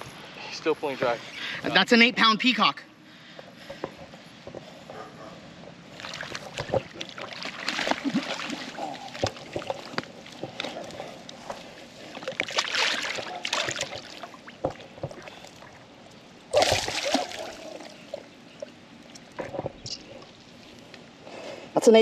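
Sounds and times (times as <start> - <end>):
water splashing and sloshing: 5.8 - 21.2.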